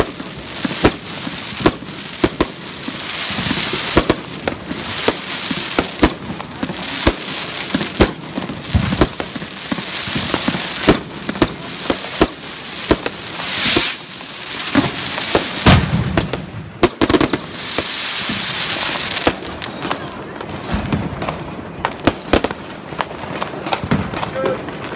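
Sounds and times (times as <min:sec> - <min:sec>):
firework hiss: 0:00.0 - 0:19.7
fireworks bangs and pops: 0:00.0 - 0:24.9
fireworks crackling: 0:00.0 - 0:24.9
heavy firework bang: 0:12.9 - 0:14.1, 0:14.7 - 0:17.4.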